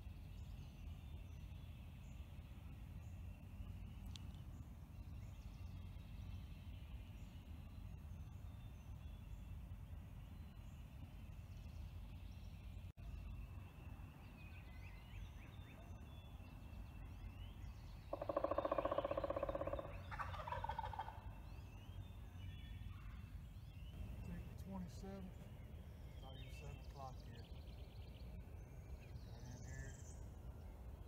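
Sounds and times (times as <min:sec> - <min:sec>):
turkey gobbling: 0:18.2 - 0:21.2.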